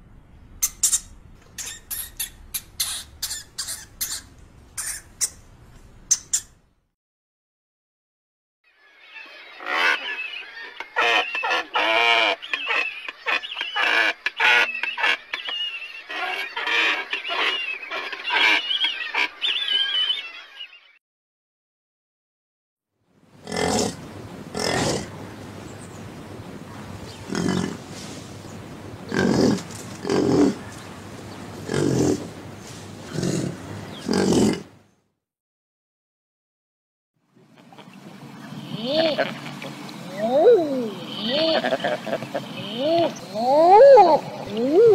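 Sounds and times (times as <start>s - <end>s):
waterfowl honking: 9.6s - 20.2s.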